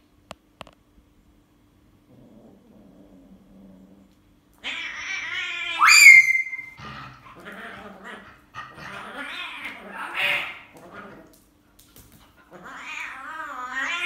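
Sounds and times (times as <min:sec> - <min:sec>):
animal cry rising in pitch: 0:04.6 - 0:06.8
quiet yips: 0:05.8 - 0:06.8.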